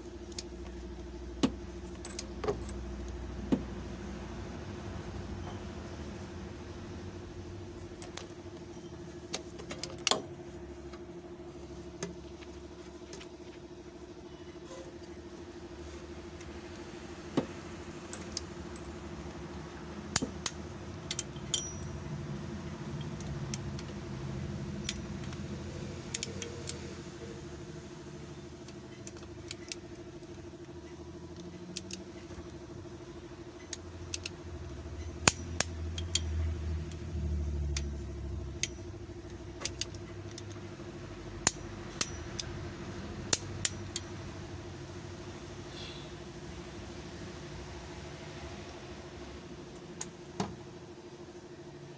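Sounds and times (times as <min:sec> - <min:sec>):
steady background hum: 0:00.0 - 0:51.9
socket wrench clicking: 0:20.1 - 0:21.9, 0:26.0 - 0:26.9, 0:31.3 - 0:32.0, 0:33.6 - 0:34.4, 0:35.0 - 0:40.6, 0:41.4 - 0:42.6, 0:43.3 - 0:44.1.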